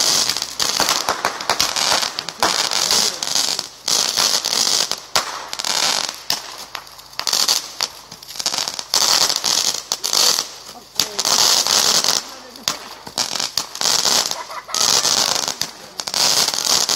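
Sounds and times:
fireworks bangs and crackling: 0.0 - 16.9.

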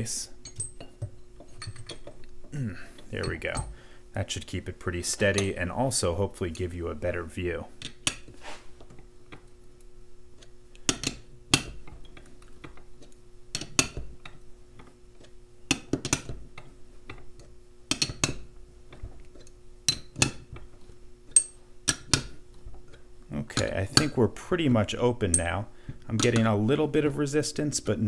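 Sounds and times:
faint steady hum: 0.0 - 28.0
wrench clinking against metal: 0.4 - 2.1, 3.2 - 3.7, 21.3 - 21.6.

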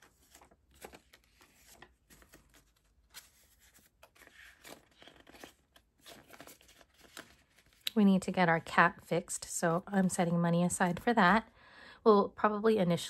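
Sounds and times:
paper banknotes rustling: 0.0 - 7.9.

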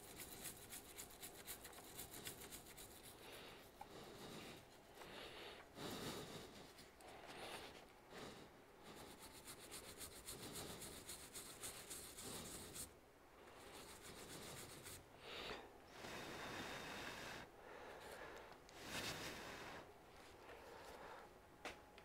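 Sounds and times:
paper towel rubbing: 0.0 - 3.3, 9.0 - 12.9, 13.6 - 15.0
toothbrush scrubbing circuit board: 0.0 - 3.3, 9.0 - 12.9, 13.6 - 15.0.

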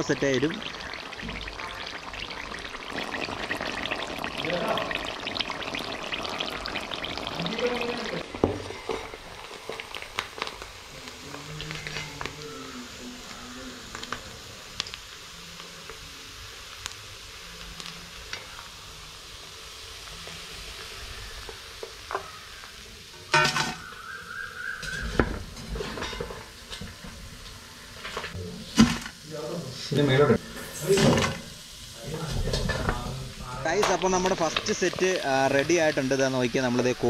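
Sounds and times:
fish sizzling in oil: 0.0 - 37.0
ladle clanking: 23.3 - 23.8.

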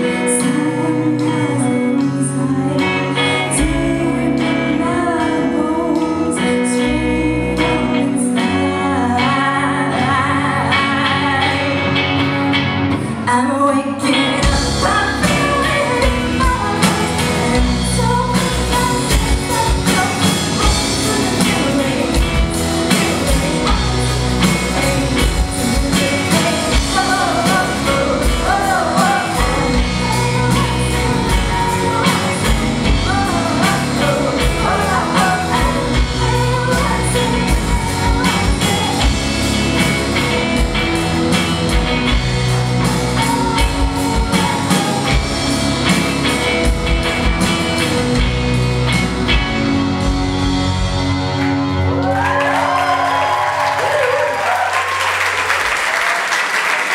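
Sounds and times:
person singing: 0.0 - 40.7, 41.8 - 46.4
electric guitars: 0.0 - 56.9
drum kit: 14.2 - 56.9.

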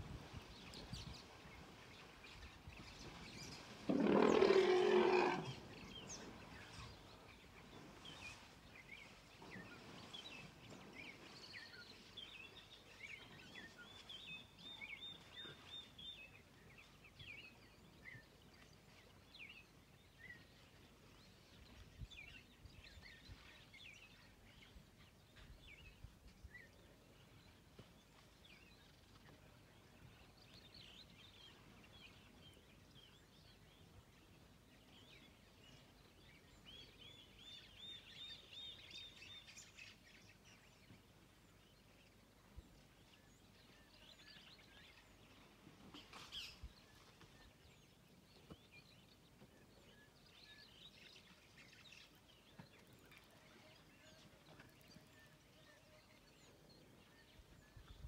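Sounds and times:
faint chirping birds: 0.0 - 58.0
elephant trumpeting: 3.9 - 5.6.

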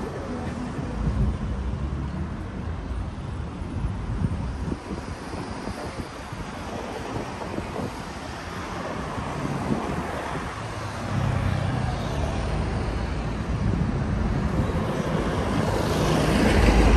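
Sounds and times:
wind buffeting microphone: 0.0 - 16.9
cars driving past: 6.7 - 16.9.

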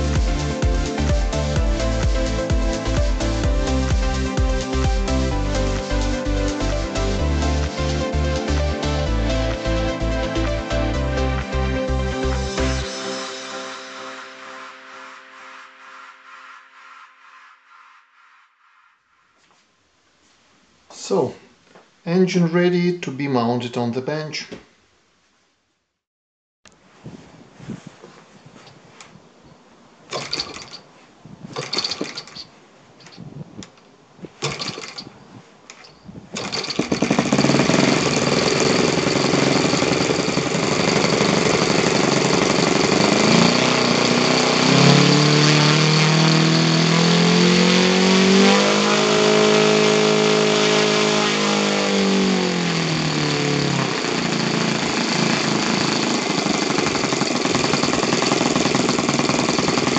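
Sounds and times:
model engine starting and running: 30.1 - 30.8, 31.5 - 32.4, 34.4 - 35.1, 36.4 - 59.9.

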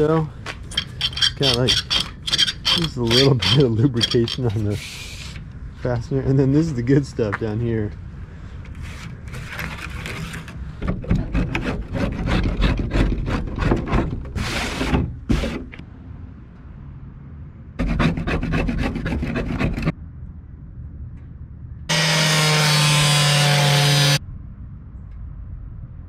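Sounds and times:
blade scraping metal door edge: 0.7 - 4.7.

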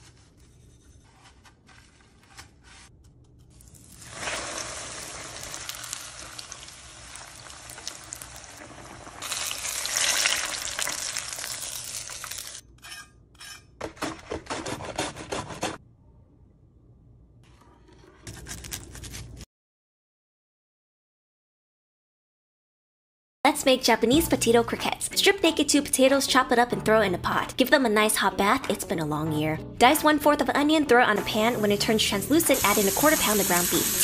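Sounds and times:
oil crackles and pops: 3.4 - 12.6
food sizzling in hot oil: 3.7 - 12.6, 31.5 - 34.0.

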